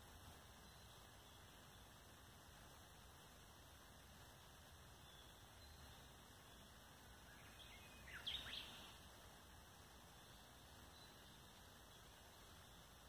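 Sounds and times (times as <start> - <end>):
faint outdoor hiss: 0.0 - 13.0
bird chirping: 0.5 - 1.9, 5.0 - 9.0, 10.1 - 13.0.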